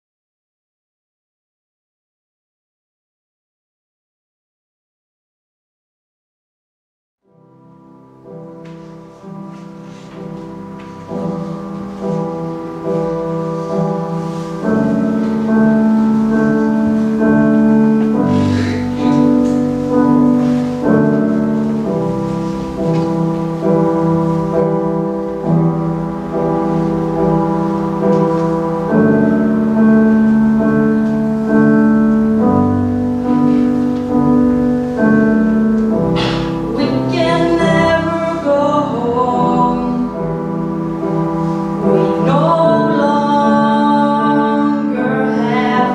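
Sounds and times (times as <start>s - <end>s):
grand piano chords: 7.2s - 45.9s
person singing: 36.2s - 40.3s, 41.8s - 45.9s.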